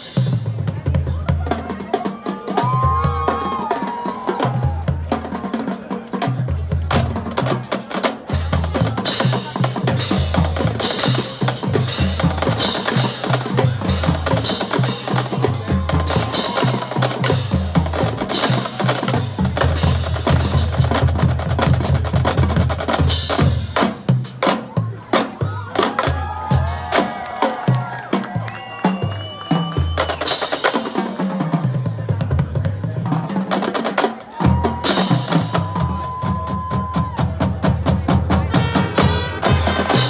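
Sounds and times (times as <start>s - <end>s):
snare drum: 7.0s - 31.4s, 33.5s - 40.0s.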